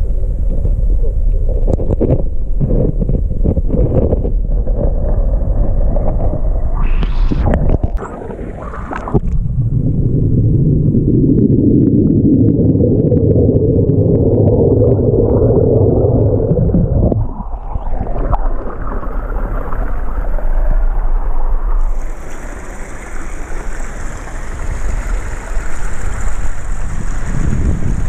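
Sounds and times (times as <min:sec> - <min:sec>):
muffled underwater water bubbling: 0:00.0 - 0:28.0
flowing river hiss: 0:21.8 - 0:28.0.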